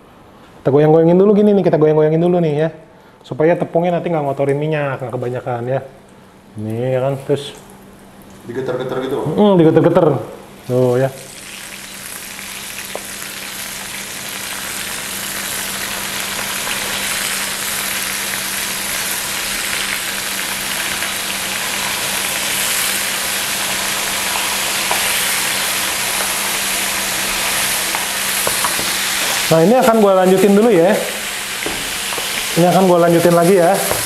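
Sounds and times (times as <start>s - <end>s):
squid deep-frying in oil: 10.6s - 34.0s.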